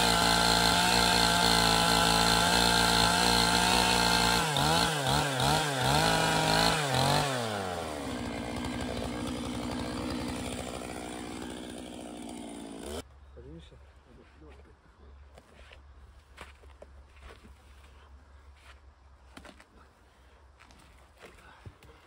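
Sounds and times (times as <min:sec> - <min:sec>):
chainsaw running: 0:00.0 - 0:13.0.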